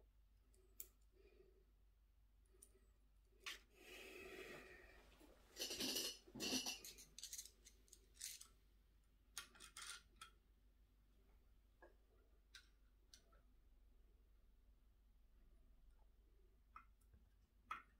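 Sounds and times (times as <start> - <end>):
small metal parts clicking: 5.6 - 8.5, 9.4 - 10.4.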